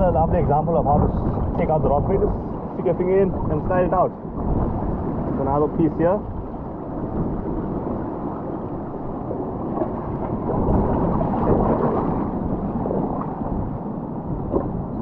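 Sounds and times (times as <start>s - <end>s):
sea water washing around rocks: 0.0s - 15.0s.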